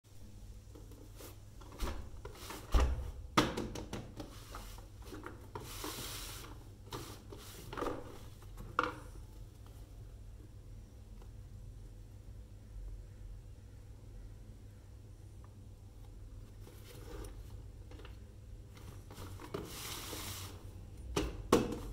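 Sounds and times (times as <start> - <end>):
box sliding across artificial turf: 5.6 - 8.0, 19.1 - 20.6.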